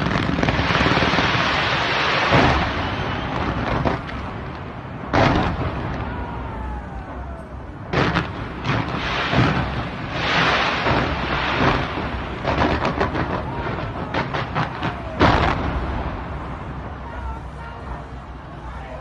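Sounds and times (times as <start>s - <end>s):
fireworks bangs: 0.0s - 18.0s
fireworks crackling: 0.0s - 18.8s.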